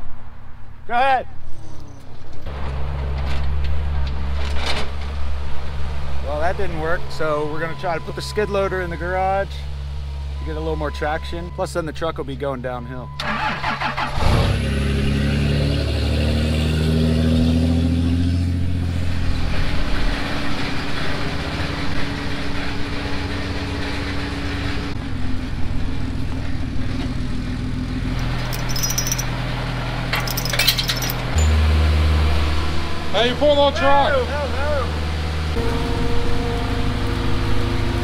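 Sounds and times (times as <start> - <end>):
vehicle engines running: 1.5 - 38.0
engine revving: 13.4 - 23.6
sharp clinks: 28.2 - 29.3, 30.1 - 31.6.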